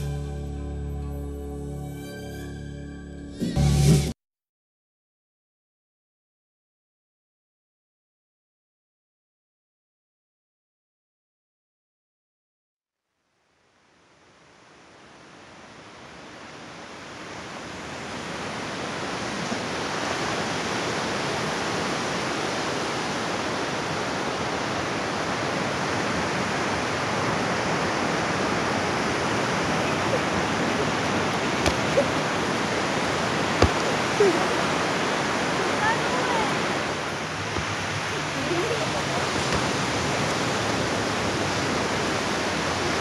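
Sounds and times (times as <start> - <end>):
surf breaking on sandy beach: 16.5 - 43.0.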